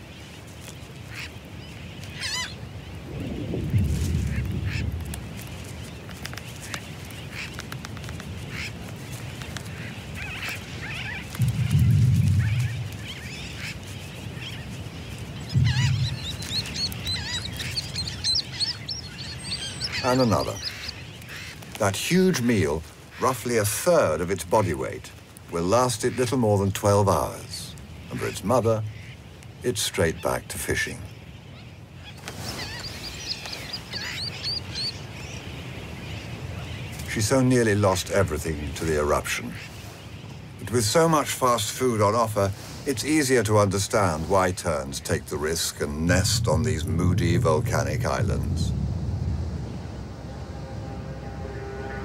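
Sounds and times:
steady background hiss: 0:00.0 - 0:52.0
low rumbling noise: 0:03.0 - 0:05.8, 0:11.3 - 0:21.3, 0:45.3 - 0:52.0
tern chick begging cries: 0:15.5 - 0:21.5.

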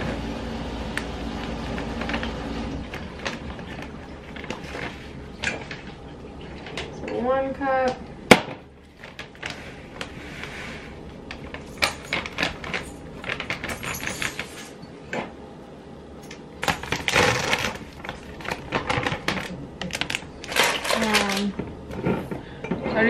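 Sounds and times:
bag crinkling and rustling: 0:08.9 - 0:14.8, 0:16.6 - 0:22.3.

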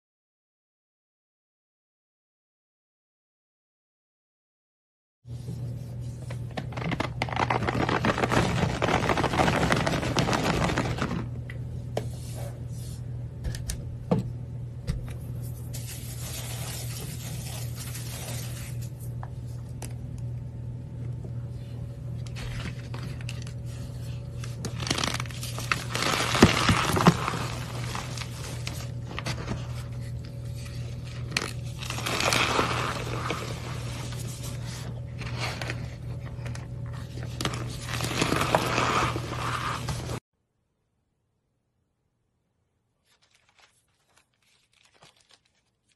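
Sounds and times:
low steady hum: 0:05.3 - 0:40.2
chalk crunching in hands: 0:15.4 - 0:19.0.

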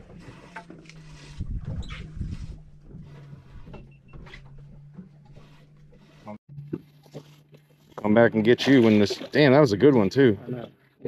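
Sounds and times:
wind rumble: 0:01.0 - 0:03.8.

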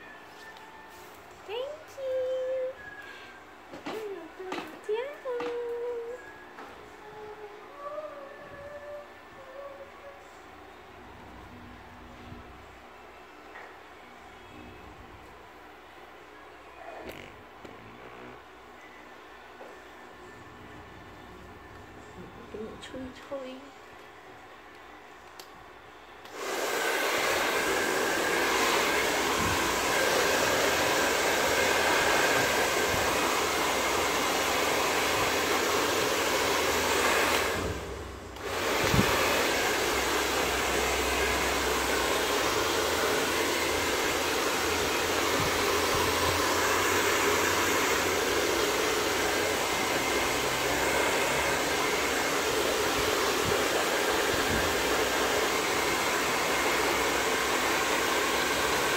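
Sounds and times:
hair dryer blowing: 0:26.2 - 0:58.9.

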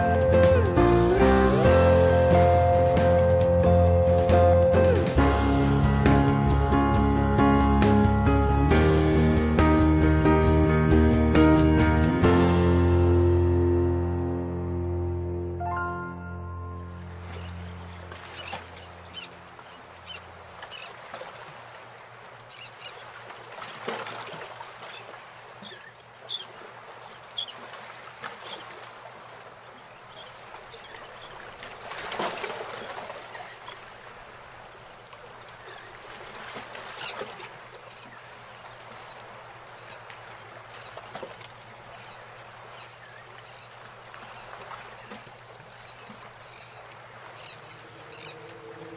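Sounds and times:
birds calling: 0:17.1 - 0:21.6, 0:24.1 - 0:32.1, 0:33.2 - 0:48.9.

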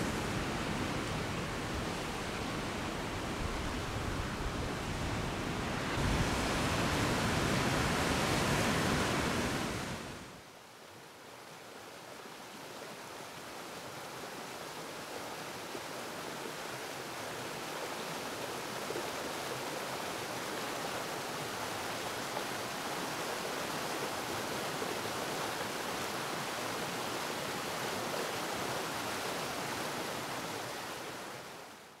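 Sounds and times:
waterfall roar: 0:00.0 - 0:10.1.

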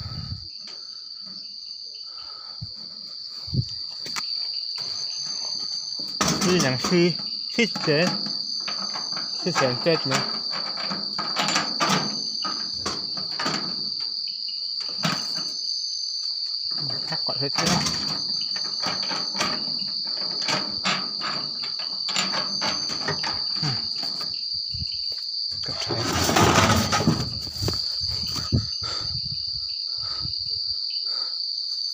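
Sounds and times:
crickets chirping: 0:00.0 - 0:31.9.

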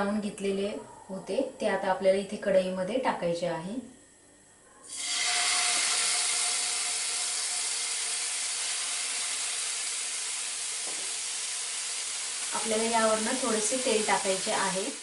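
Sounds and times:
chicken sizzling in hot oil: 0:04.9 - 0:15.0.

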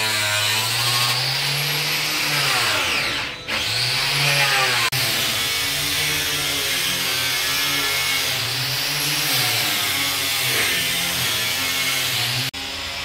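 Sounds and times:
electric power tool whining: 0:00.0 - 0:13.0.

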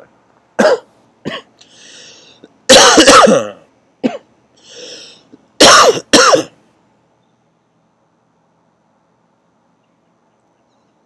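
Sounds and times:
man coughing: 0:00.6 - 0:01.5, 0:02.7 - 0:04.3, 0:05.6 - 0:06.6.

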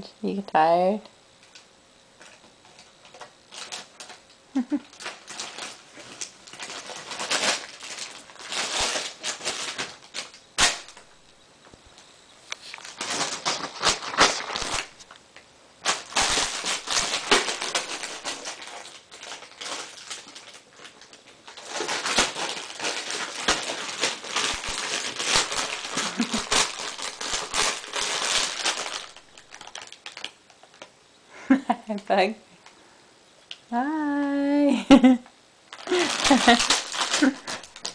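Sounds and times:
plastic packet crinkling: 0:01.4 - 0:11.4, 0:12.7 - 0:15.2, 0:15.8 - 0:30.9, 0:35.7 - 0:37.9.

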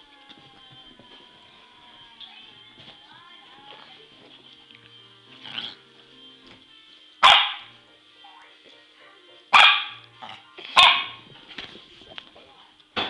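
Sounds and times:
faint background music: 0:00.0 - 0:13.0
puppy barking: 0:07.2 - 0:07.7, 0:09.5 - 0:10.0, 0:10.8 - 0:11.2.

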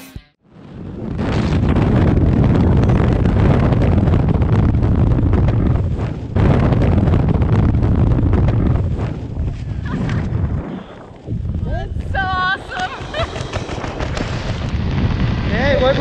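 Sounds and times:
wind buffeting microphone: 0:00.5 - 0:16.0.

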